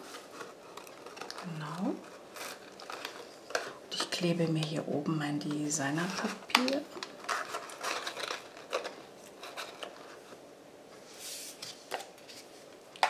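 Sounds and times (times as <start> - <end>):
paper rustling: 0.0 - 4.1, 6.0 - 10.4, 11.0 - 12.8
soft hiss: 8.9 - 13.0.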